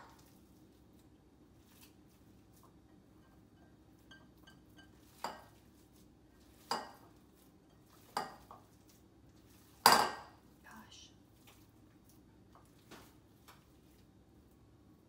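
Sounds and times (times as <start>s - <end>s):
ground meat mixed by hand: 0.0s - 10.6s, 11.2s - 14.9s
glass bowl knocking on countertop: 9.9s - 10.3s.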